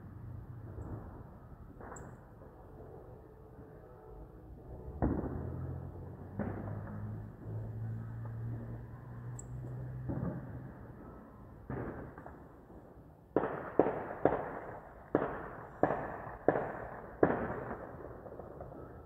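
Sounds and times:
sharp bangs with echo: 13.3 - 18.9.

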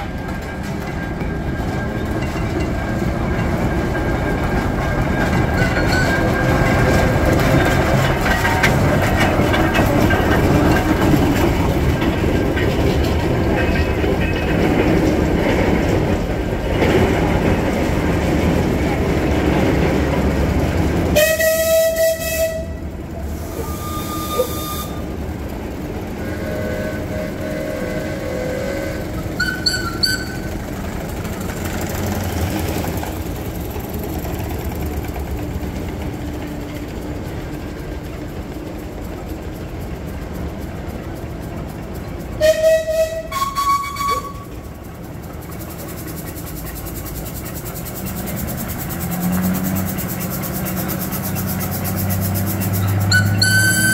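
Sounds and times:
farm machinery rattling: 0.0 - 21.1, 43.4 - 53.9.

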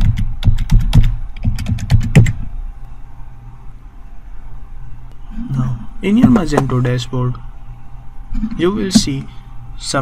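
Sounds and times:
keyboard typing: 0.0 - 2.4
low steady hum: 0.0 - 10.0.

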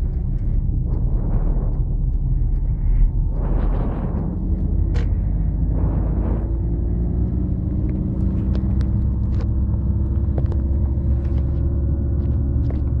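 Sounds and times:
car engine and tyres rumbling: 0.0 - 13.0
constant hum: 0.0 - 13.0.

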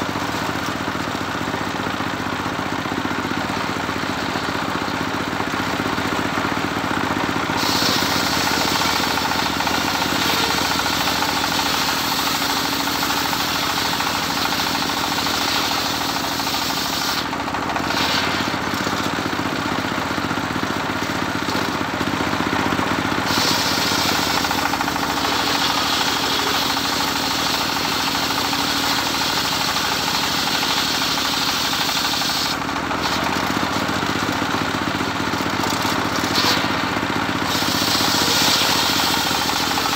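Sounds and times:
engine running steadily: 0.0 - 39.9
circular saw blade cutting wood: 7.6 - 19.3, 23.2 - 33.1, 36.2 - 39.9.

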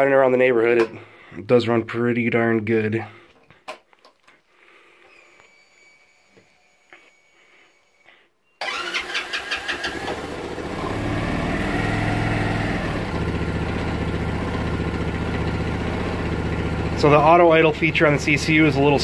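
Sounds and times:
motorcycle engine starting and idling: 8.6 - 19.0.

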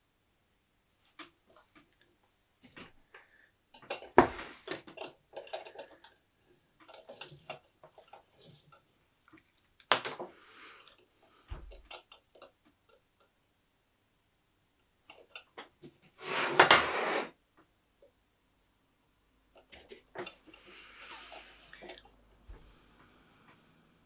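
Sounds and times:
clicks and knocks of handling tools: 3.7 - 6.2, 6.8 - 11.0.

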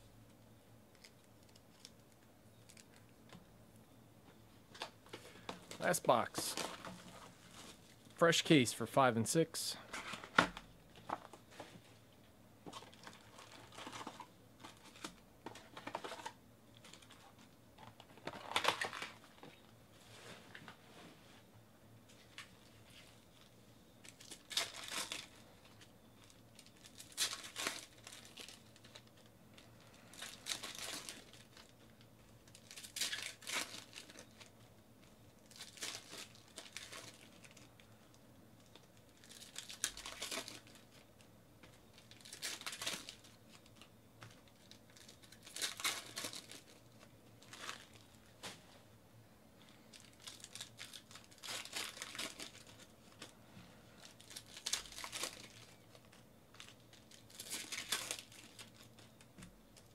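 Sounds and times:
foil wrappers crinkling and tearing: 12.7 - 19.5, 22.1 - 48.5, 49.8 - 53.4, 54.0 - 59.9.

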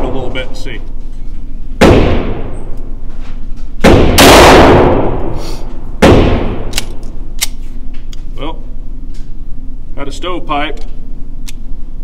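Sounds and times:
pistol shots echoing indoors: 1.8 - 2.8, 3.8 - 7.6.

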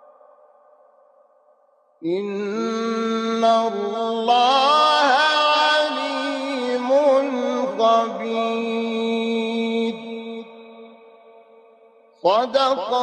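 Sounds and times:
man chanting melodic recitation: 2.0 - 10.9, 12.2 - 13.0.

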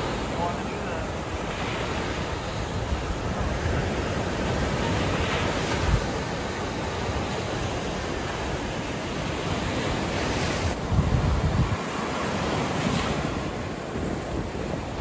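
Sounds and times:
surf breaking on beach: 0.0 - 15.0
wind buffeting microphone: 0.0 - 15.0.

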